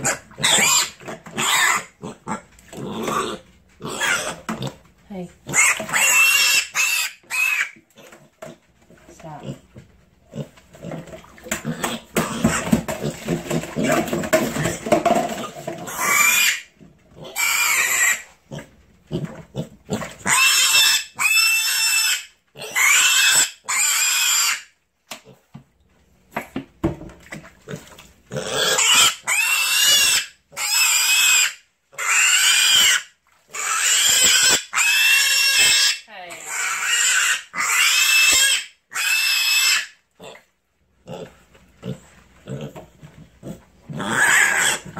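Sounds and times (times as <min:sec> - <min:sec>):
piglet squealing: 0:00.0 - 0:02.4, 0:03.1 - 0:04.4, 0:05.5 - 0:07.8, 0:15.8 - 0:18.3, 0:20.2 - 0:24.7, 0:28.4 - 0:40.4, 0:44.0 - 0:44.9.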